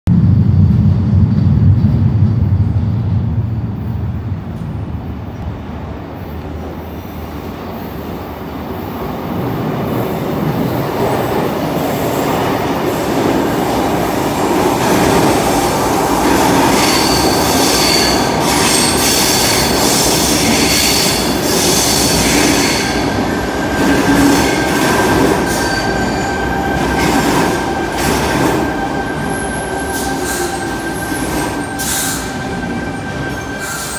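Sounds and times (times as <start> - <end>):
low train rumble: 0.1 - 33.9
high wheel squeals: 28.6 - 33.9.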